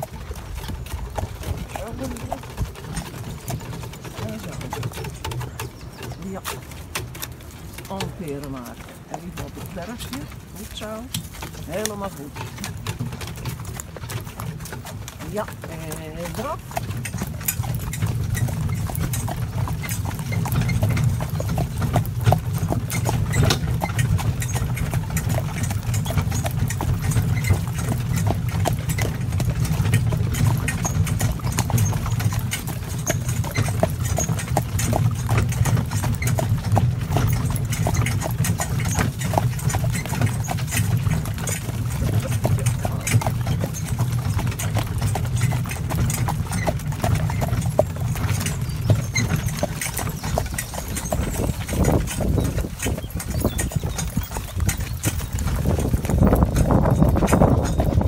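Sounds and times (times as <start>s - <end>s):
carriage knocks and rattles: 0.0s - 15.8s
horse hooves clip-clopping: 0.0s - 58.0s.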